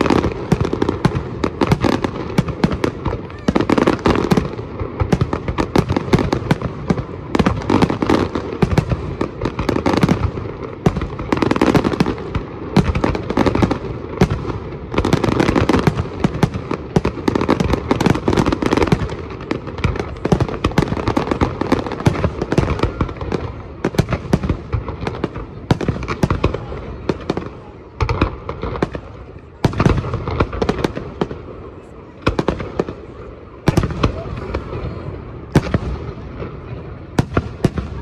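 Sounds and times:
fireworks bangs: 0.0 - 38.0
fireworks crackling: 0.0 - 38.0.

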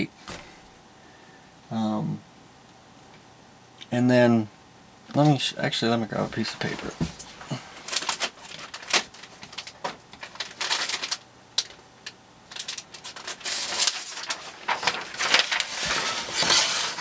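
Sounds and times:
paper rustling: 6.2 - 11.2, 12.5 - 17.0.

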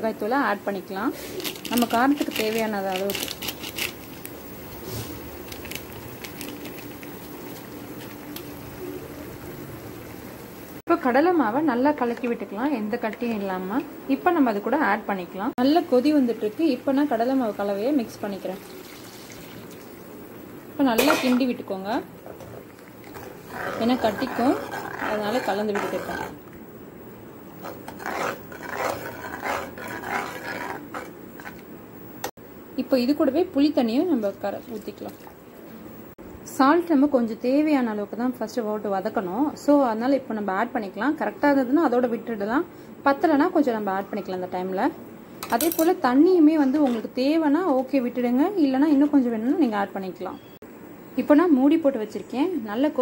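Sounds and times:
ladle scraping a pan: 22.3 - 26.4, 27.6 - 31.6.

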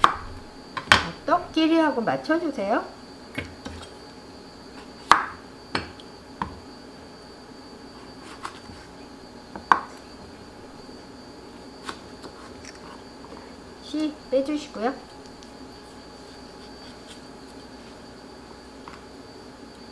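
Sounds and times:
knife chopping on wooden board: 5.0 - 6.6.

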